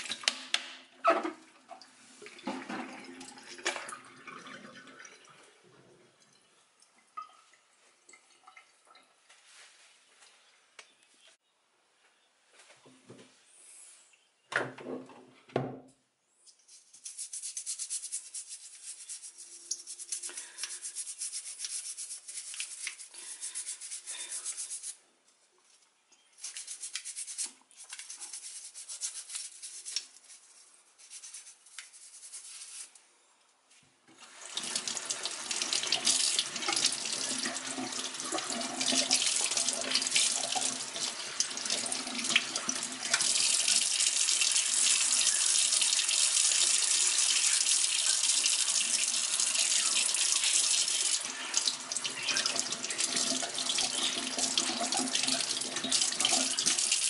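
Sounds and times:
rubbing sounds: 16.4s - 25.0s, 26.4s - 33.0s
water running from a tap: 34.2s - 57.0s.

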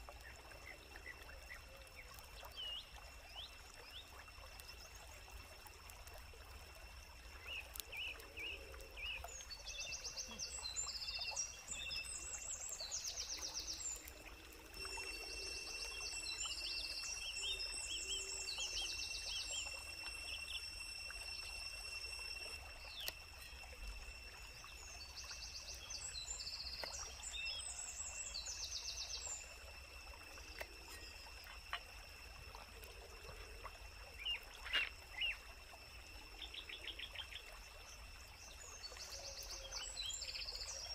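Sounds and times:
water burbling: 0.0s - 40.9s
steady high-pitched drone: 13.0s - 26.7s.

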